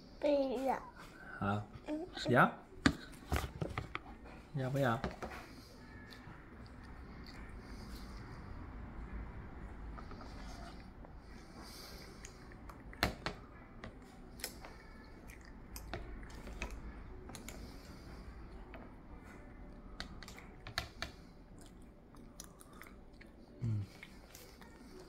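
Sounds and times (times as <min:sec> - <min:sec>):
chewing: 0:14.2 - 0:17.9, 0:21.4 - 0:25.0
person humming: 0:23.6 - 0:23.9.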